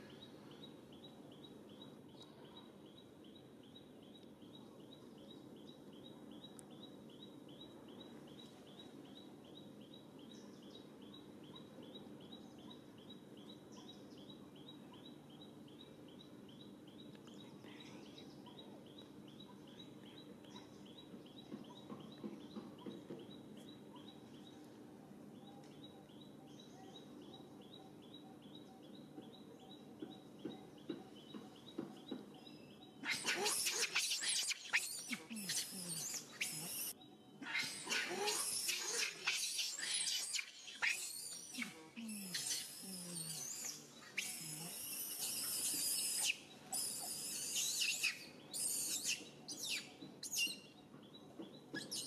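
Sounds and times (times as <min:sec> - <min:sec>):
small bird chirping: 0:25.4 - 0:52.0.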